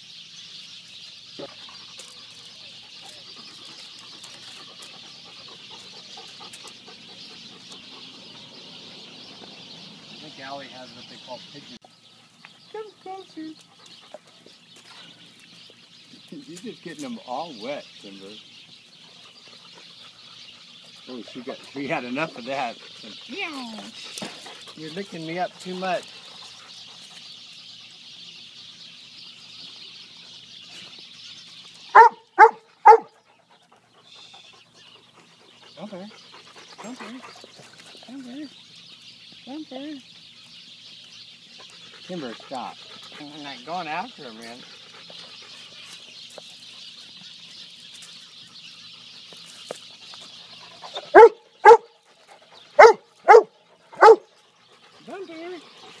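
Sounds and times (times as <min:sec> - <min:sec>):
dog barking: 0:31.9 - 0:33.1, 0:51.0 - 0:51.9, 0:52.8 - 0:54.2.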